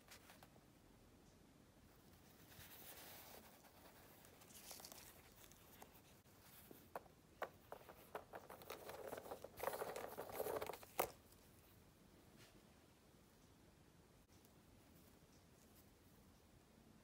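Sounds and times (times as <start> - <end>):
rustling: 1.8 - 12.7.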